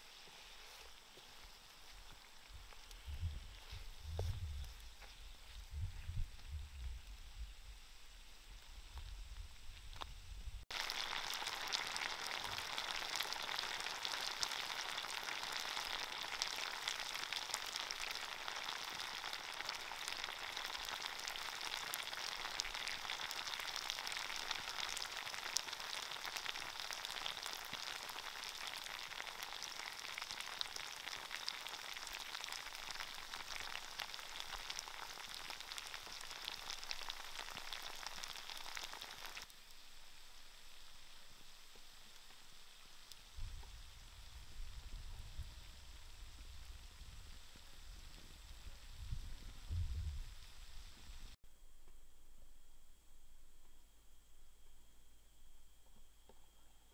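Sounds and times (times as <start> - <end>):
fish sizzling in a frying pan: 9.9 - 49.6.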